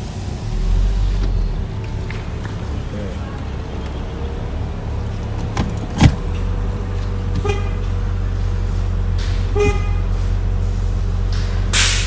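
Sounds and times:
car engine idling: 0.0s - 12.0s
short horn toots: 7.4s - 7.9s, 9.4s - 10.4s.

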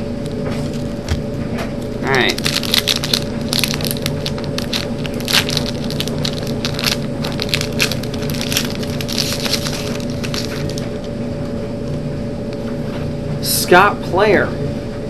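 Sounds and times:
wrapper tearing and crinkling: 2.0s - 11.1s.

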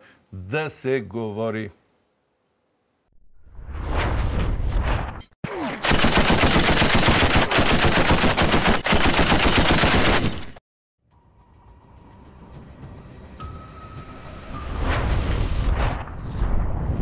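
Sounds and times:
whoosh: 3.4s - 5.2s, 14.3s - 17.0s
machine-gun fire: 5.8s - 10.6s.

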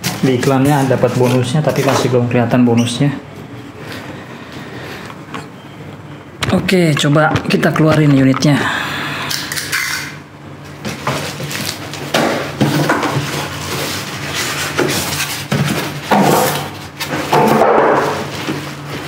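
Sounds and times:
cardboard and plastic rustling: 10.7s - 19.0s.

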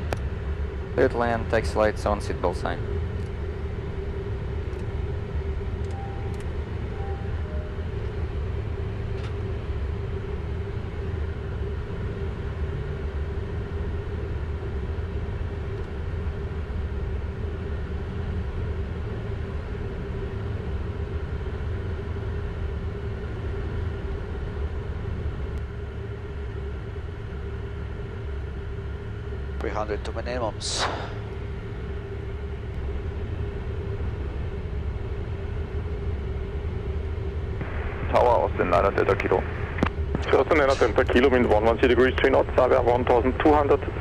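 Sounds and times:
airflow rumble: 0.0s - 44.0s
jet engine hum: 0.0s - 44.0s
soft cockpit beeps: 5.8s - 8.3s.

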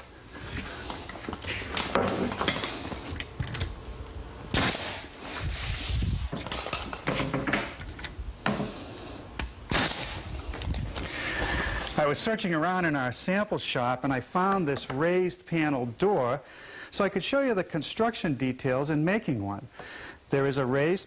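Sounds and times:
nail gun shots: 4.5s - 5.1s, 9.7s - 10.2s
hiss of air: 4.5s - 6.4s, 8.4s - 12.0s.

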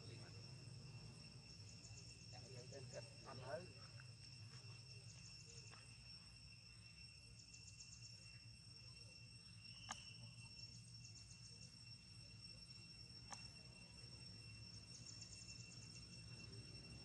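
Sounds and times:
insects chirping: 0.0s - 17.0s
faint click: 9.8s - 10.0s.

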